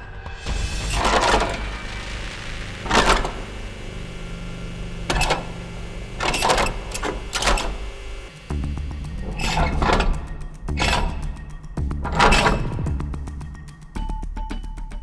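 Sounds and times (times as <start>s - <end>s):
rasping clattering metal on metal: 8.9s - 13.4s.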